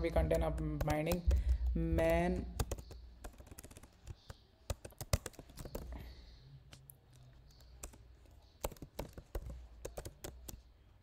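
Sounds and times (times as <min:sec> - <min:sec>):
typing on computer keyboard: 0:00.0 - 0:06.0, 0:07.1 - 0:10.7.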